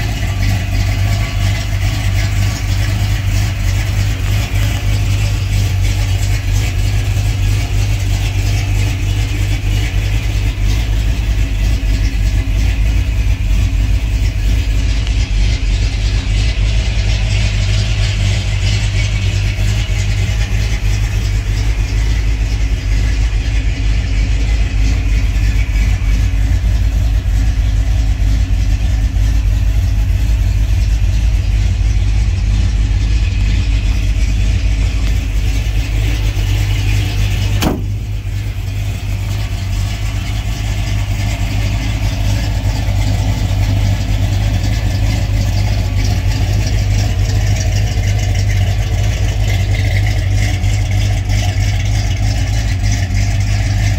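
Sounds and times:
truck engine idling: 0:00.0 - 0:53.9
sharp click: 0:37.6 - 0:38.0.

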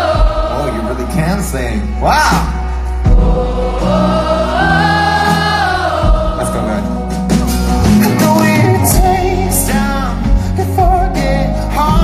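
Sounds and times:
crowd singing along: 0:00.0 - 0:01.5, 0:02.4 - 0:12.0
live band music: 0:00.0 - 0:12.0
person singing: 0:07.8 - 0:12.0.

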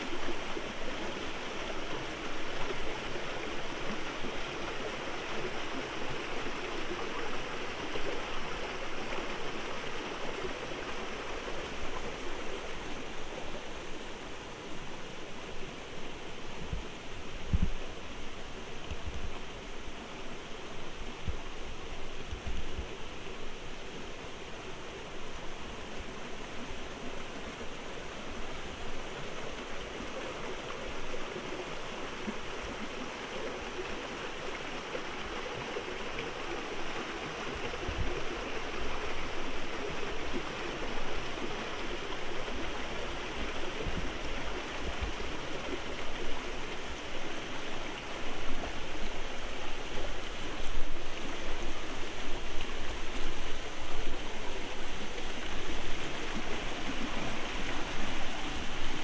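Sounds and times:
stream splashing over cascades: 0:00.0 - 0:59.0.

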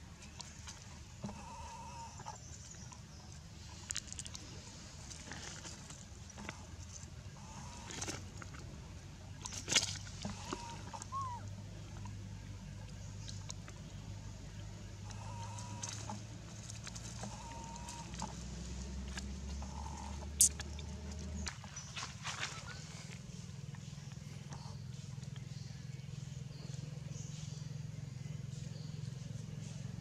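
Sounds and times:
infant monkey calls: 0:10.6 - 0:11.5
rustling in dry leaves: 0:21.2 - 0:24.0.

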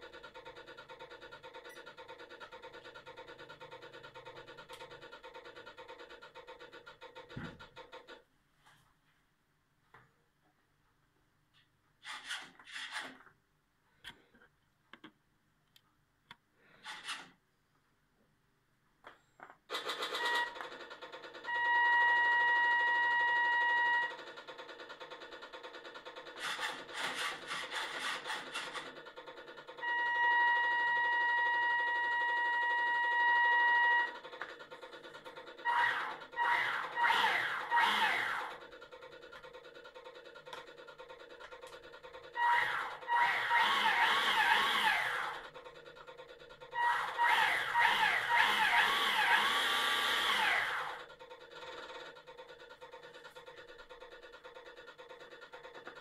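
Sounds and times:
ship's horn from small speaker: 0:29.8 - 0:34.2.

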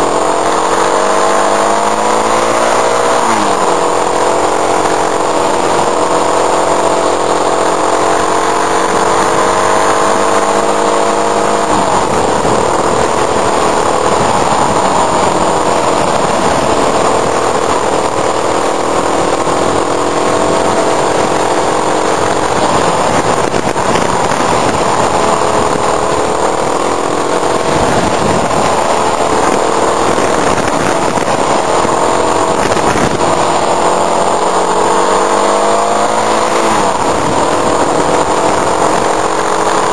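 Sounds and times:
motorcycle engine running: 0:00.0 - 0:39.9
wind rush over microphone: 0:00.0 - 0:39.9.

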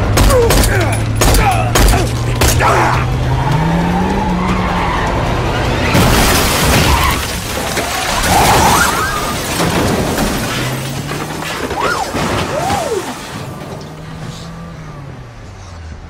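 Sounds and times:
loud vehicle crash: 0:00.0 - 0:15.1
tyres skidding: 0:00.0 - 0:16.0
vehicle engine: 0:00.0 - 0:16.0.

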